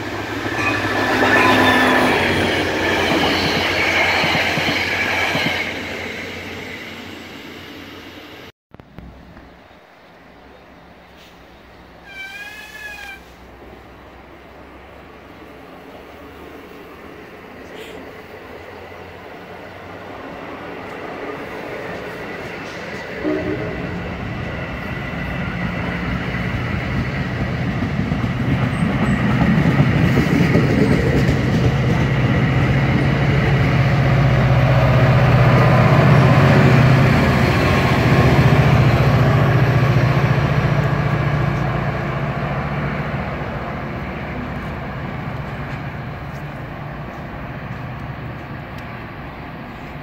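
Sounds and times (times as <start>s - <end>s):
train wheels rolling over rails: 23.9s - 50.0s
locomotive engine hum: 30.6s - 50.0s.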